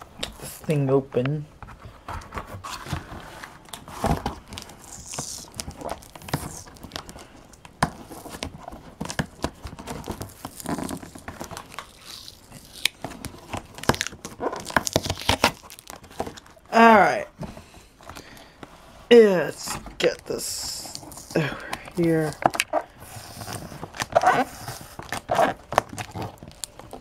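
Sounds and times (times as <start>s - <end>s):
cardboard tearing and scraping: 2.3s - 7.2s, 7.9s - 17.1s, 19.1s - 27.0s.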